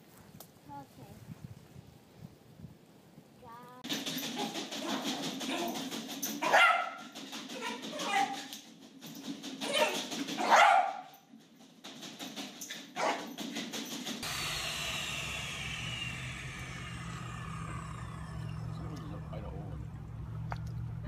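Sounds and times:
dog barking: 6.4s - 7.0s, 10.4s - 11.1s, 13.0s - 13.3s
low hum with falling whine: 14.2s - 21.0s.

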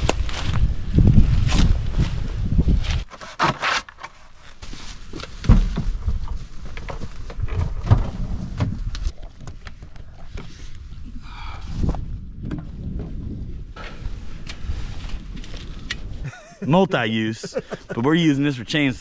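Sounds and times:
footsteps crunching dry leaves: 0.0s - 3.1s.

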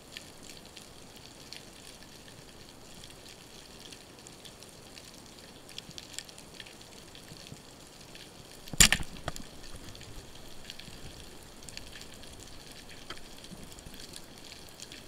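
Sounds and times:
faint clicks: 8.6s - 15.0s
speargun shot crack: 8.7s - 9.2s.

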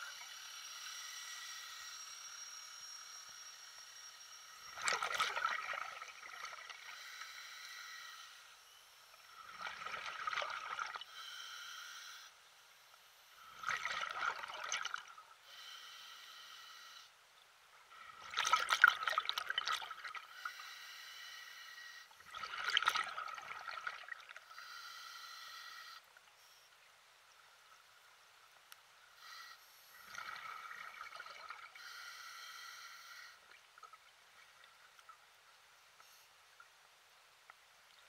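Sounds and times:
water sloshing and splashing: 4.8s - 6.8s, 18.1s - 20.2s, 22.3s - 24.4s.

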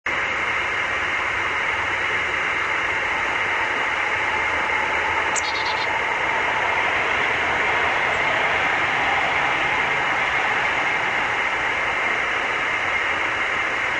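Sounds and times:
high-pitched chirp: 5.3s - 5.9s.

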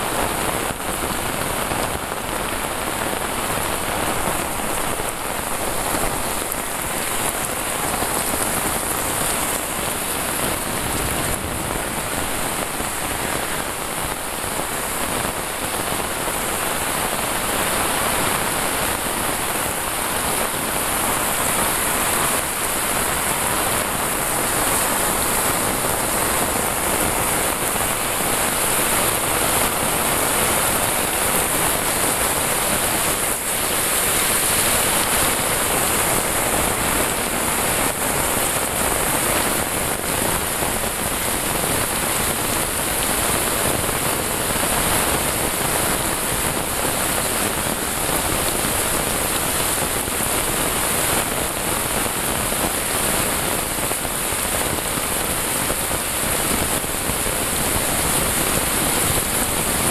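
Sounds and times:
heavy rain hissing: 0.0s - 59.9s
runoff pouring off eaves: 0.0s - 59.9s.

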